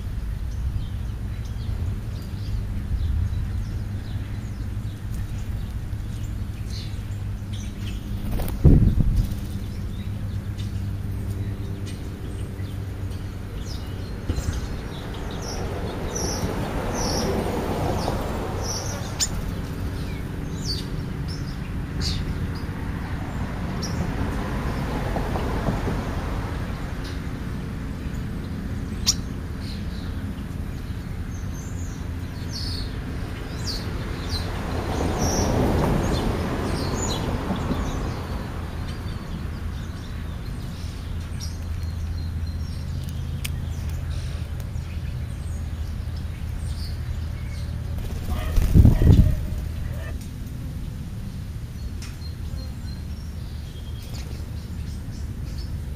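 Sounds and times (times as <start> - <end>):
birds chirping: 0.0 - 25.9, 26.9 - 55.9
steady low rumble: 0.3 - 16.0.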